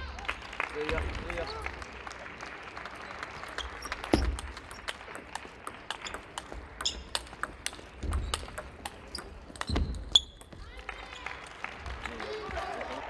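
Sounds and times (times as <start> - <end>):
table tennis ball clicks: 3.8 - 10.6.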